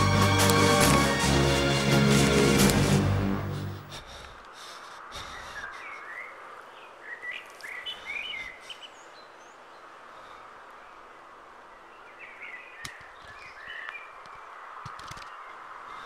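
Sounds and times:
music: 0:00.0 - 0:03.9
outdoor ambience: 0:00.0 - 0:16.0
bird chirps: 0:05.2 - 0:10.0.

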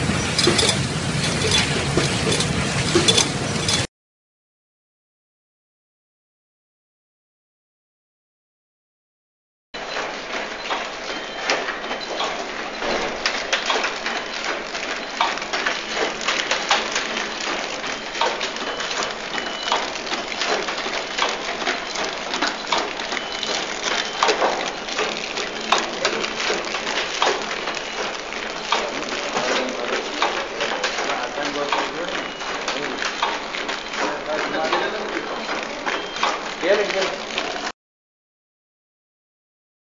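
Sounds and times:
machinery clattering: 0:00.0 - 0:03.9, 0:09.8 - 0:37.7.

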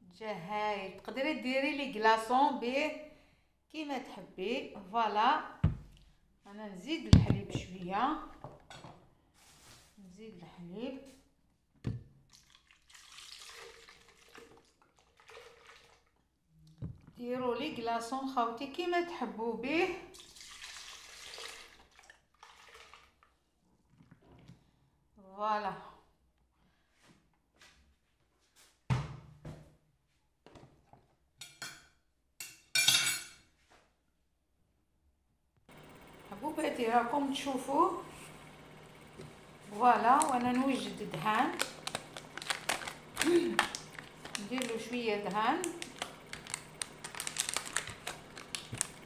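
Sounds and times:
milk being poured: 0:12.3 - 0:16.2, 0:20.1 - 0:23.4
dishes and utensils clinking: 0:31.4 - 0:33.4.

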